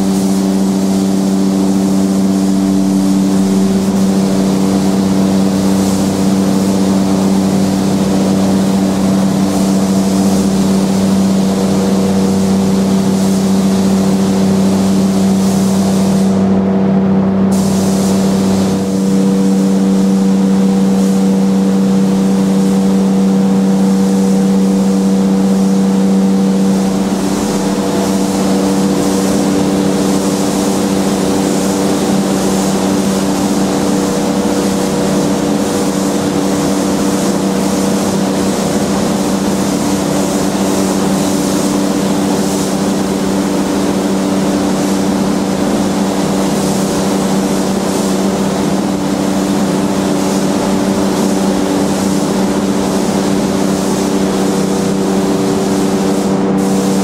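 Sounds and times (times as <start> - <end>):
spray gun air hissing: 0.0 - 16.6, 17.5 - 57.0
air compressor running: 0.0 - 57.0.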